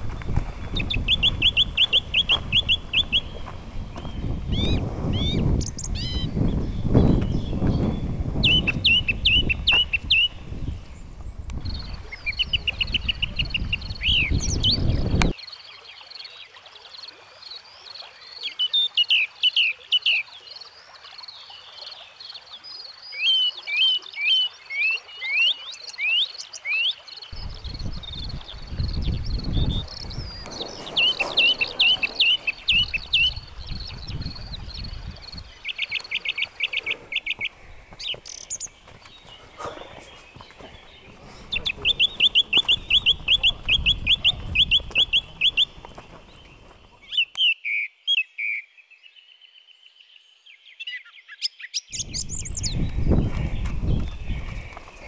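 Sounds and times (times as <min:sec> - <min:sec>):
wind rumble on microphone: 0:00.0 - 0:15.4, 0:27.3 - 0:38.0, 0:39.0 - 0:47.0, 0:51.9 - 0:55.0
birds chirping and trilling: 0:00.0 - 0:55.0
microphone handling noise: 0:27.4 - 0:35.5, 0:52.1 - 0:55.0.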